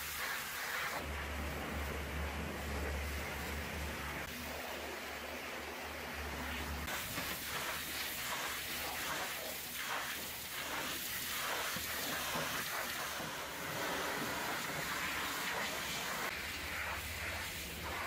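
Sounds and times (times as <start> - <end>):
pressure washer spraying metal: 0.0 - 2.0, 6.5 - 18.0.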